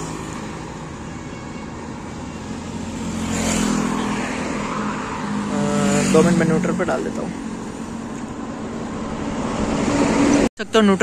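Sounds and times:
vehicle passing: 0:02.0 - 0:10.5.

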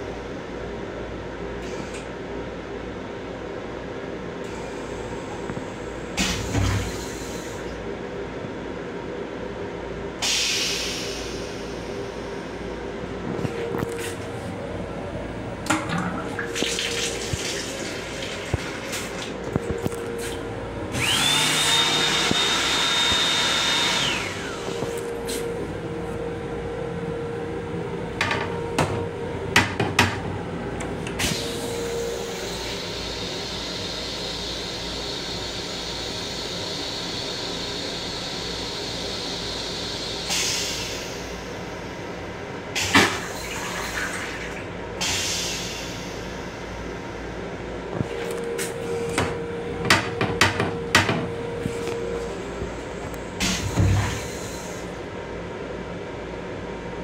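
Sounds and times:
low train hum: 0:00.0 - 0:57.0
toilet flush motor whine: 0:13.3 - 0:55.2.

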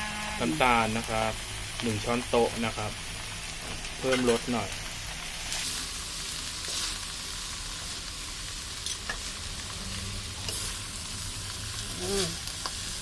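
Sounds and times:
food sizzling in a wok: 0:00.0 - 0:13.0
metal spatula scraping a wok: 0:06.6 - 0:07.1, 0:08.8 - 0:13.0.

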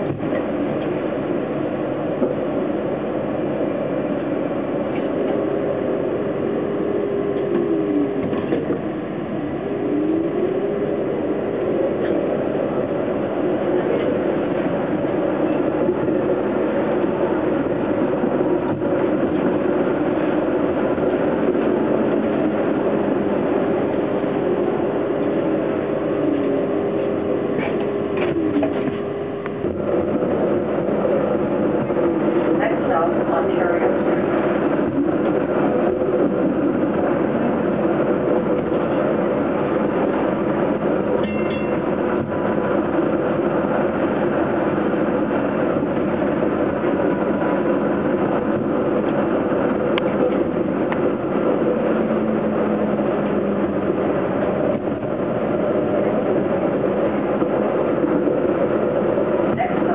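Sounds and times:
streetcar wheels rumbling: 0:00.0 - 0:59.9
streetcar whine: 0:00.0 - 0:59.9.

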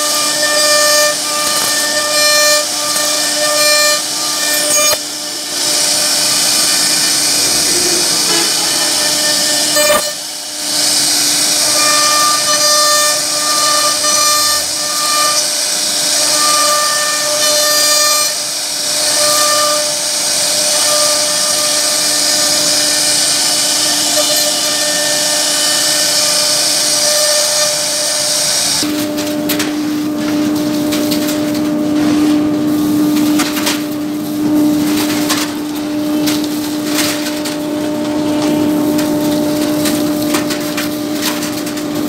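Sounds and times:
router spindle whine: 0:00.0 - 0:29.2.

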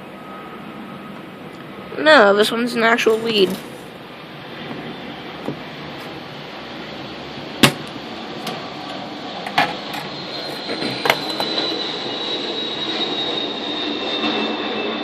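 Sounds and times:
faint high whine: 0:00.0 - 0:15.0
desoldering pump snapping: 0:07.6 - 0:08.6.

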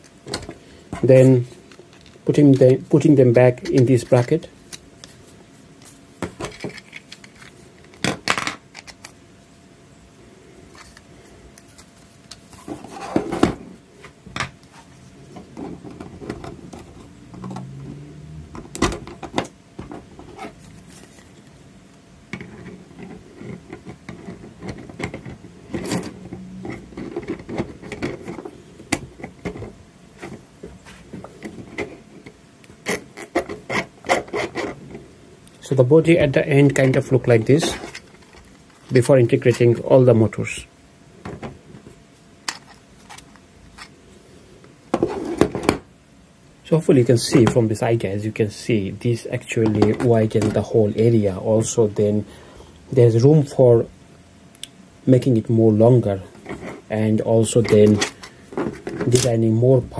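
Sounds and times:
plastic parts scraping: 0:05.8 - 0:09.2, 0:10.7 - 0:17.8, 0:22.3 - 0:35.0, 0:36.0 - 0:39.8, 0:41.2 - 0:44.0, 0:44.9 - 0:45.8, 0:56.2 - 0:59.5.

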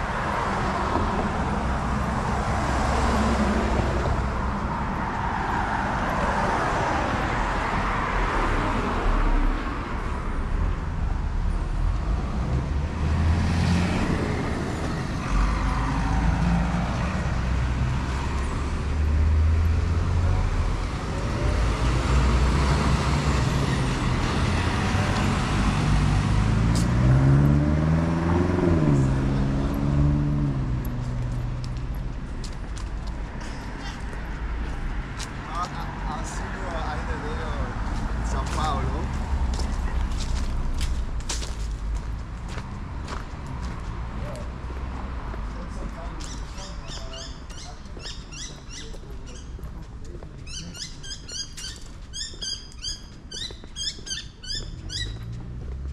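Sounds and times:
road traffic passing: 0:00.0 - 0:55.9
car engine accelerating: 0:18.8 - 0:32.0.

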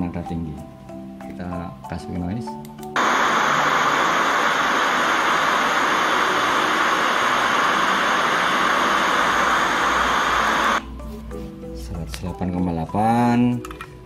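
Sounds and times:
pink noise hiss through speaker: 0:03.0 - 0:10.8.

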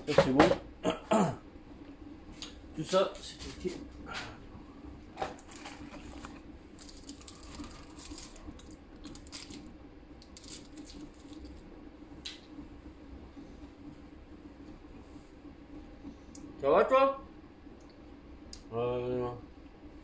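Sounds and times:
low hum: 0:00.0 - 0:20.0
paper wrapper crinkling: 0:05.3 - 0:11.6.

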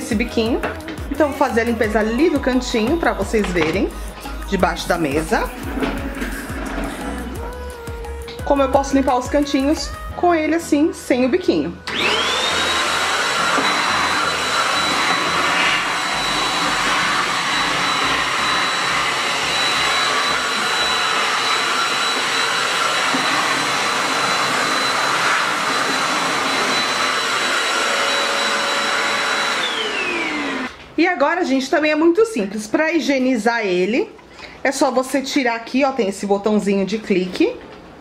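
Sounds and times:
vacuum motor whining: 0:11.8 - 0:30.8.

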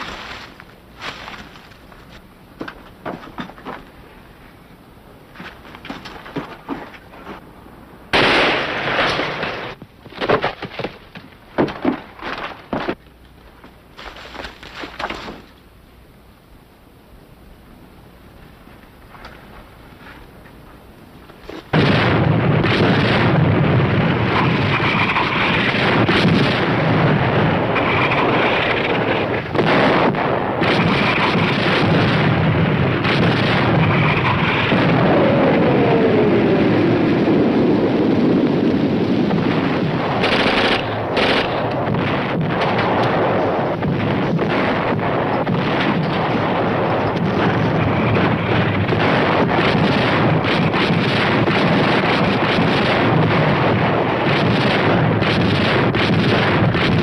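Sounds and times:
gunfire: 0:08.1 - 0:09.8, 0:21.7 - 0:35.4, 0:39.5 - 0:57.0
explosions: 0:08.1 - 0:10.3, 0:21.7 - 0:57.0.

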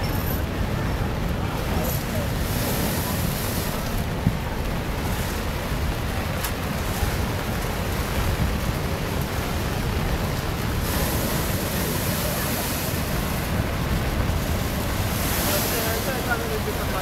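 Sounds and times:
storm surf pounding a seawall: 0:00.0 - 0:17.0
wind buffeting microphone: 0:00.0 - 0:17.0
wave breaking over wall: 0:00.3 - 0:17.0.

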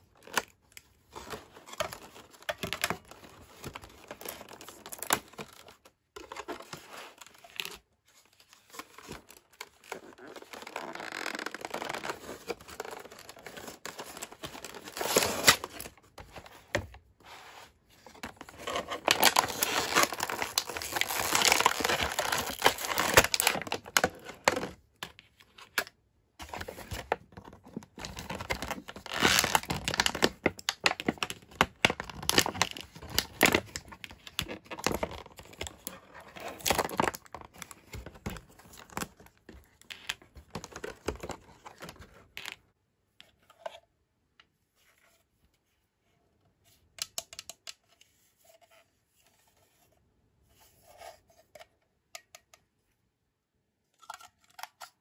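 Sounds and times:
plastic packaging crinkling: 0:08.8 - 0:16.0, 0:18.3 - 0:24.7, 0:28.0 - 0:39.2.

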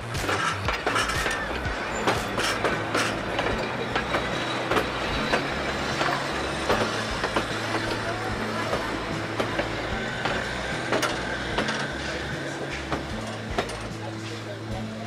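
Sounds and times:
low rumble of carriages: 0:00.0 - 0:15.0
train wheels clicking over rail joints: 0:00.0 - 0:15.0.

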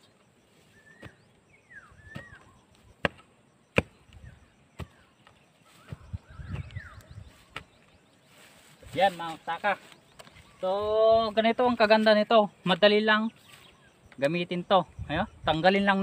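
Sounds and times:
hand tool chopping into soil: 0:00.9 - 0:01.3, 0:02.0 - 0:04.1, 0:04.7 - 0:06.7.

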